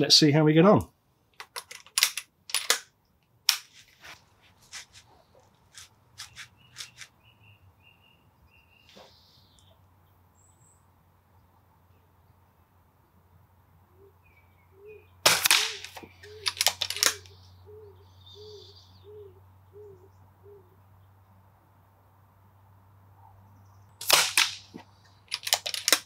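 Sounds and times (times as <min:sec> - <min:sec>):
rifle lever mechanical clicks: 0:01.4 - 0:02.9, 0:15.3 - 0:17.3, 0:25.3 - 0:26.0
air rifle shot cracks: 0:15.2 - 0:17.2, 0:24.0 - 0:26.0.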